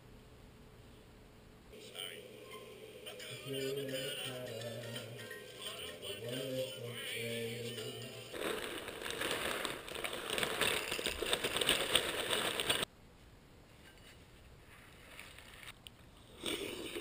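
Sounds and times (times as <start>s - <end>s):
dry cereal poured into bowl: 8.3s - 12.8s.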